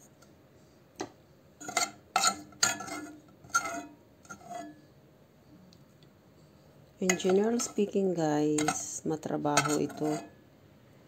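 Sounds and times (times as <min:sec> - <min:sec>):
metal pots and utensils clanking: 0:01.6 - 0:04.7, 0:07.0 - 0:10.4.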